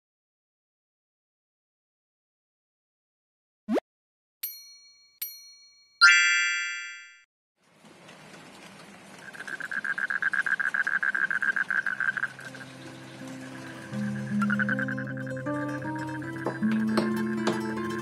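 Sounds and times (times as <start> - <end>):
bright dings: 4.4 - 7.3
ringing chime: 4.4 - 7.3
rain on plants: 7.6 - 18.0
pulsing high animal call: 9.3 - 12.8, 13.4 - 17.4.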